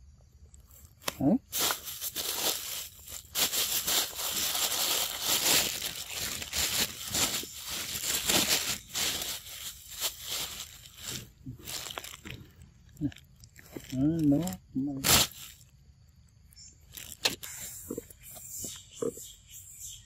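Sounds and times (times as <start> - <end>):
plastic bag crinkling: 0.6 - 15.7, 16.8 - 17.5.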